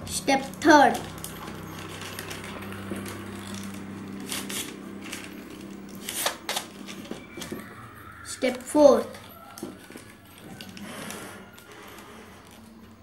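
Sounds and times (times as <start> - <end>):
glossy paper rustling: 0.8 - 13.0
crisp paper swishes: 1.5 - 7.7.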